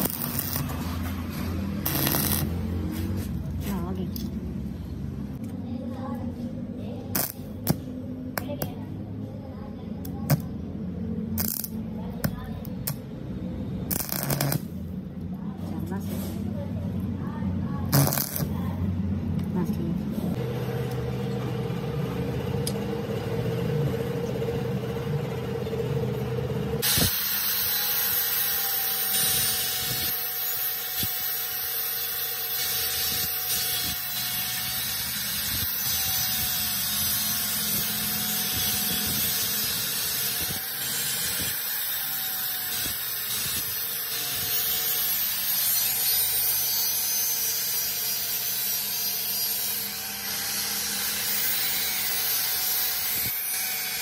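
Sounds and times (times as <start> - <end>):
angle grinder cutting steel: 0.0 - 3.2, 13.9 - 14.7, 26.8 - 54.0.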